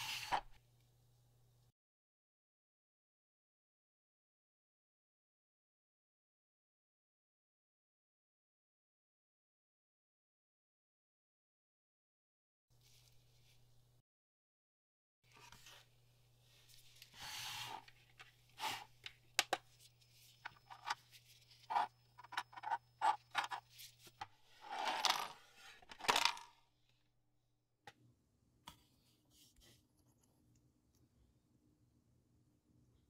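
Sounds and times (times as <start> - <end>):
scrape on tabletop: 0.0 - 0.6, 17.1 - 17.9, 18.6 - 18.9.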